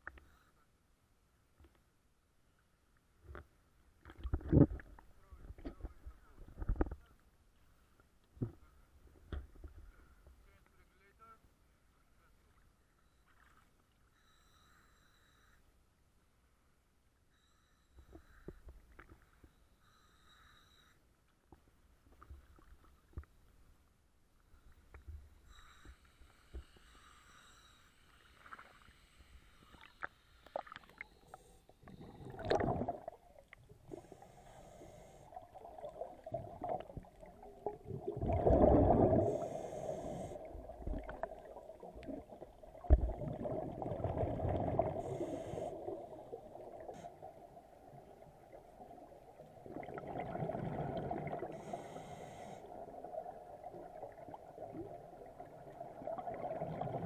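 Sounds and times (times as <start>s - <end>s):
water sounds: 21.6s - 57.0s
regulator bubbles gurgling underwater: 31.8s - 34.1s, 35.3s - 57.0s.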